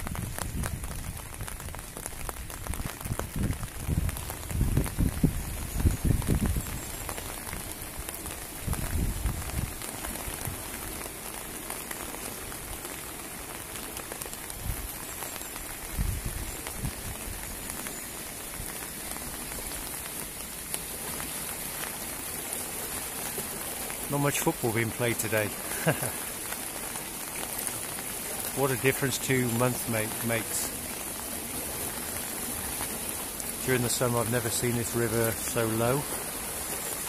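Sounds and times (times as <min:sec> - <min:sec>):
floodwater rushing: 0:00.0 - 0:37.0.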